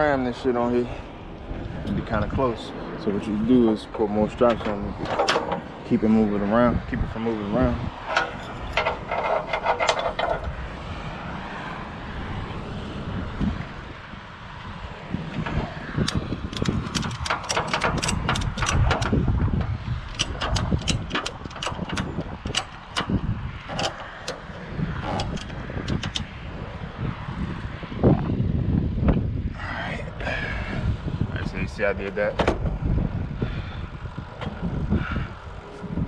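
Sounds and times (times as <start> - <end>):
steady low rumble: 0.0 - 36.0
ratchet strap clicking: 16.0 - 19.2, 20.1 - 26.3.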